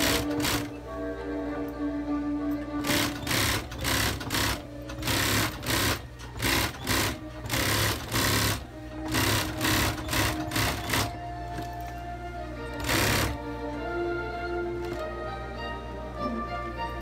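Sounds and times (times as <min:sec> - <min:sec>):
industrial sewing machine stitching: 0:00.0 - 0:00.8, 0:02.8 - 0:11.8, 0:12.8 - 0:13.4.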